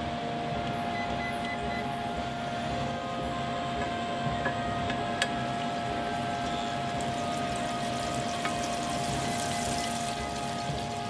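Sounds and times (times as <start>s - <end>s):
high hum: 0.0s - 11.0s
butter sizzling in a saucepan: 5.4s - 11.0s.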